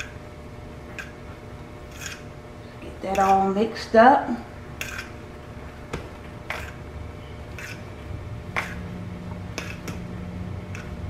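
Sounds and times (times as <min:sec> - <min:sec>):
low steady hum: 0:00.0 - 0:11.0
utensil stirring rice in glass bowl: 0:01.8 - 0:02.3, 0:04.8 - 0:05.3, 0:06.4 - 0:06.9, 0:07.5 - 0:08.9, 0:10.7 - 0:11.0.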